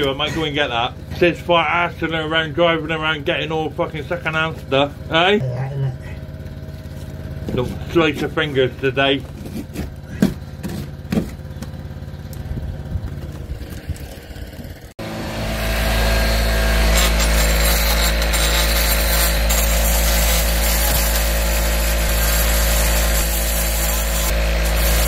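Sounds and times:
oscillating multi-tool cutting: 13.7s - 25.0s.

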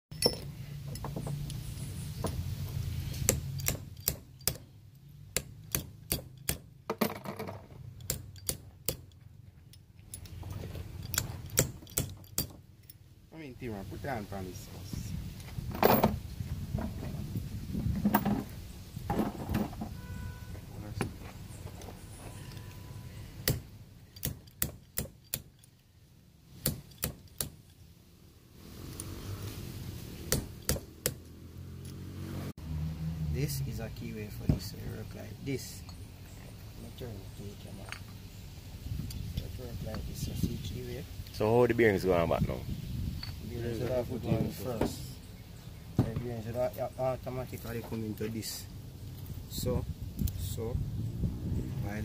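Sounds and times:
metal parts clicking and tapping: 0.1s - 1.6s, 2.2s - 13.1s, 23.4s - 25.9s, 26.6s - 27.8s
sharp metallic clicks: 3.2s - 6.7s, 8.0s - 10.4s.

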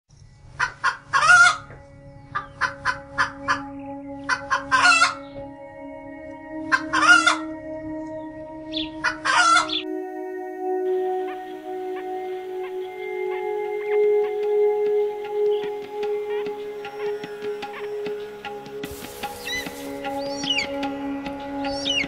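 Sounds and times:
chicken clucking and squawking: 0.6s - 1.7s, 2.3s - 3.7s, 4.3s - 5.2s, 6.7s - 7.4s, 8.8s - 9.8s.

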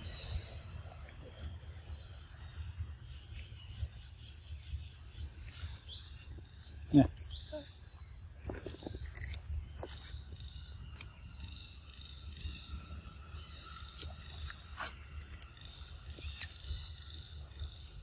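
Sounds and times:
insect drone: 0.0s - 18.0s
monkey crunching fruit: 8.4s - 11.3s, 13.7s - 16.8s.

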